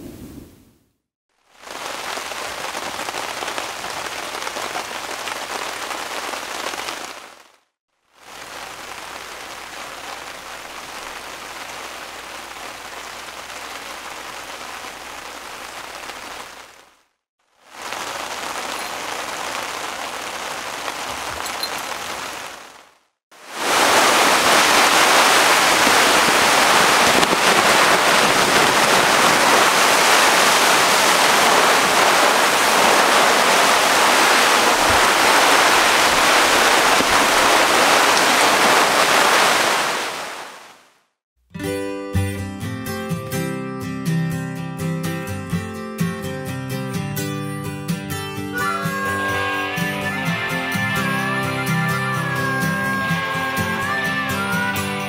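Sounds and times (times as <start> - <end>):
rain falling on a tarp: 1.3 - 41.1.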